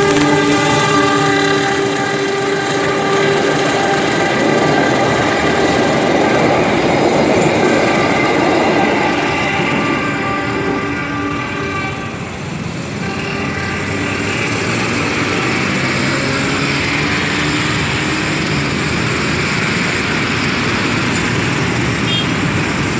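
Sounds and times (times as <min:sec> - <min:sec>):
chord of steady tones: 0:00.0 - 0:12.3
train rumbling on track: 0:00.0 - 0:22.9.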